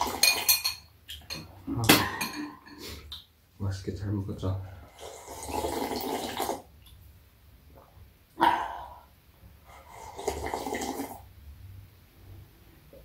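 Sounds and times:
person slurping soup: 4.9s - 6.6s, 9.7s - 11.2s.

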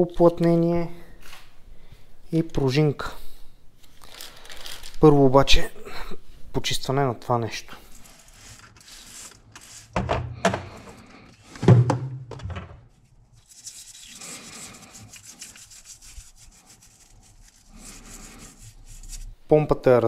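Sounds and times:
small brush scrubbing metal: 7.8s - 10.0s, 13.0s - 19.4s.

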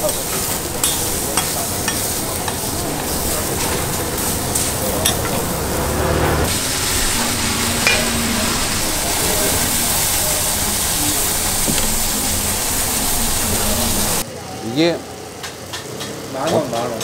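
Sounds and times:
steaks sizzling on griddle: 0.0s - 14.2s
metal spatula scraping and tapping: 0.1s - 2.7s.

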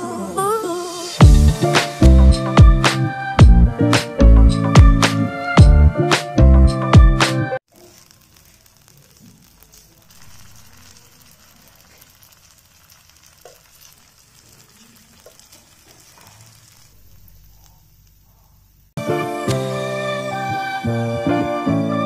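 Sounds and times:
food sizzling on a griddle: 7.6s - 21.7s.

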